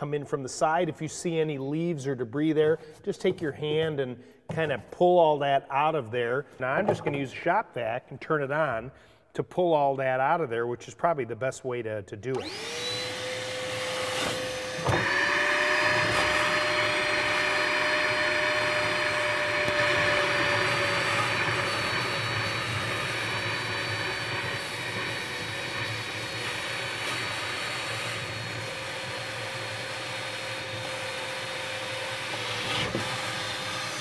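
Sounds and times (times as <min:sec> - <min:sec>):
shop vac motor whine: 0:12.3 - 0:34.0.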